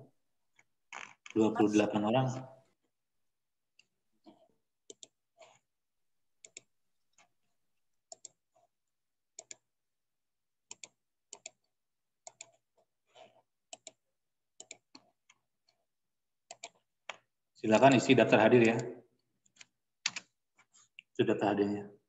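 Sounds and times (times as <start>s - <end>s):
computer mouse clicking: 3.8s - 5.6s, 6.4s - 6.7s, 8.1s - 8.4s, 9.4s - 9.6s, 10.7s - 14.0s, 14.6s - 15.8s, 16.5s - 17.2s, 18.6s - 18.9s, 19.5s - 20.3s.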